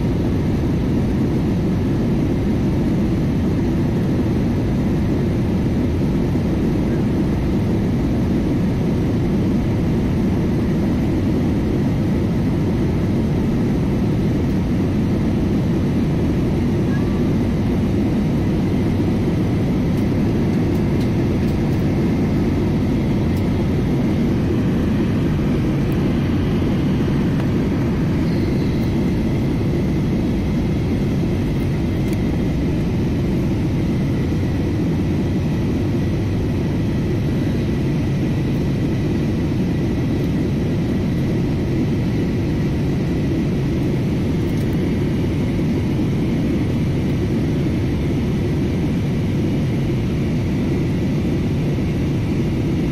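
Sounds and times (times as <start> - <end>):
faint steady whine: 0.0 - 52.9
jet cabin engine rumble: 0.0 - 52.9.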